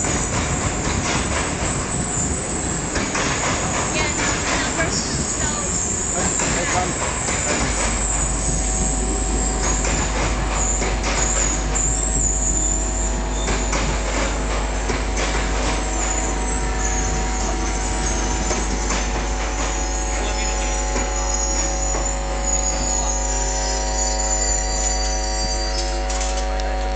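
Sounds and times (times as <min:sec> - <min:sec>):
train wheels knocking: 0:00.0 - 0:23.4
high wheel squeal: 0:03.8 - 0:13.7, 0:15.9 - 0:26.1.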